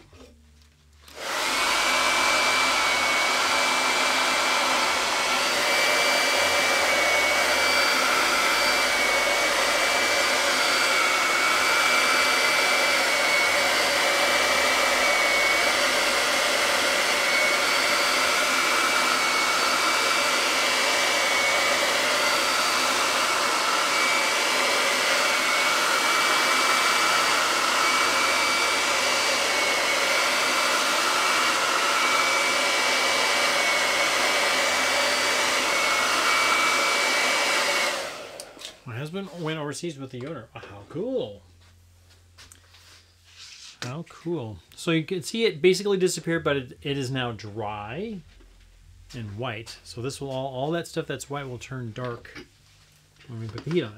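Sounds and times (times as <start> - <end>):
hair dryer running: 1.0 - 39.6.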